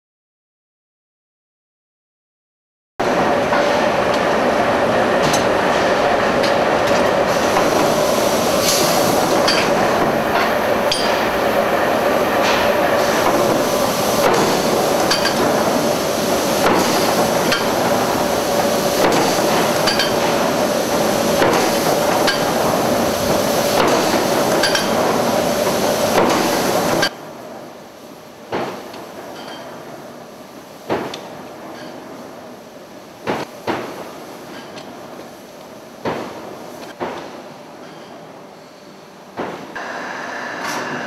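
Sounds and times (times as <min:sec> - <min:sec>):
forge machinery roaring: 0:03.0 - 0:27.1, 0:39.7 - 0:41.0
forging hammer striking metal: 0:09.4 - 0:11.5, 0:12.4 - 0:15.6, 0:16.6 - 0:17.9, 0:19.0 - 0:20.4, 0:21.4 - 0:22.6.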